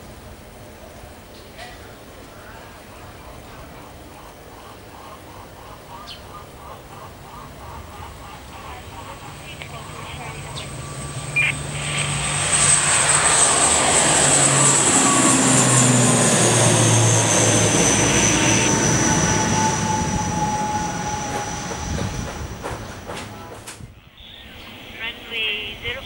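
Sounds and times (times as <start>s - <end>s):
turboprop plane taking off: 2.4s - 26.0s
high engine whine: 6.6s - 26.0s.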